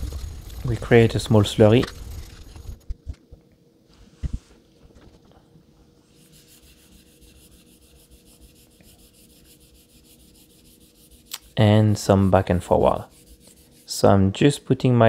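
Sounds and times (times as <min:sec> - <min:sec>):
razor scraping on whetstone: 0:06.2 - 0:11.6, 0:13.0 - 0:13.9.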